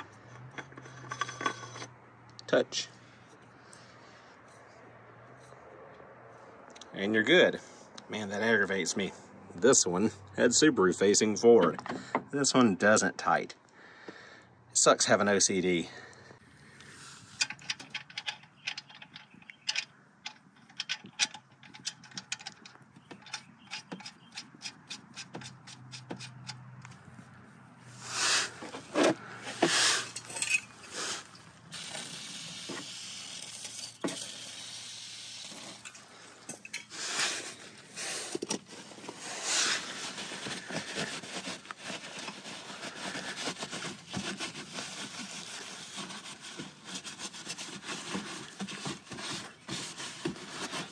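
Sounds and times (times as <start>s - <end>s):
rag scraping and rubbing metal: 0.0s - 2.0s, 27.9s - 50.9s.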